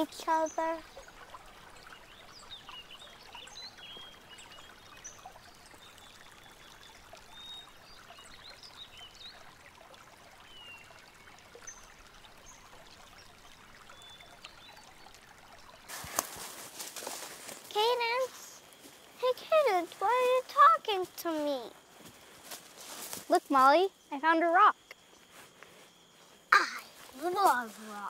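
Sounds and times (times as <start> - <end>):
steady soft hiss: 10.5 - 28.0.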